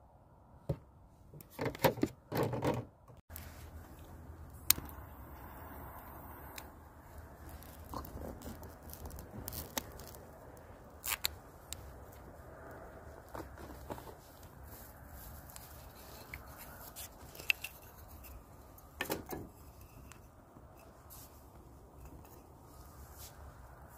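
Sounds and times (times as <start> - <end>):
rustling and scraping of handling: 1.1 - 23.9
sharp clicks and crackles: 3.3 - 5.1, 5.9 - 14.5.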